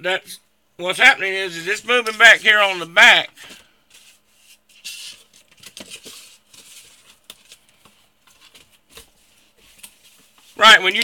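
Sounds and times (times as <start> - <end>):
hands rustling and scraping: 3.4 - 11.0.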